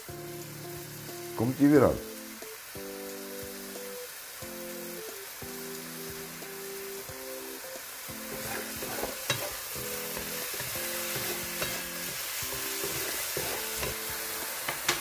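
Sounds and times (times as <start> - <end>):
food sizzling in a wok: 0.0 - 15.0
wooden spatula scraping pan: 8.2 - 15.0
sharp clicks against wok: 14.7 - 15.0.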